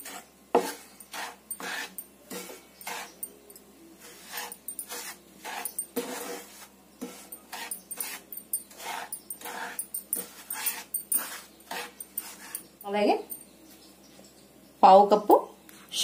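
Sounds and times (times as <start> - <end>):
spatula scraping a pan: 0.0 - 3.4, 4.0 - 12.8.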